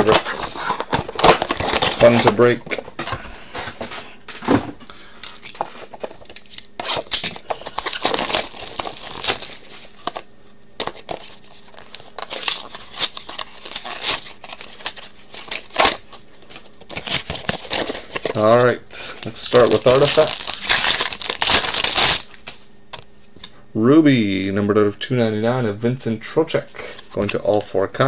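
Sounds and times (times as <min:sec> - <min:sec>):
card packs tearing and crinkling: 0:00.0 - 0:03.8, 0:05.2 - 0:22.6, 0:26.8 - 0:27.8.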